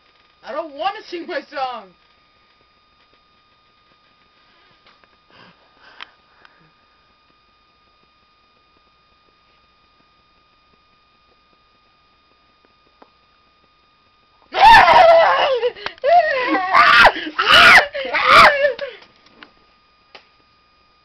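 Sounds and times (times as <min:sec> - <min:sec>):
faint steady high whine: 0:00.0 - 0:21.0
small tick: 0:20.1 - 0:20.3.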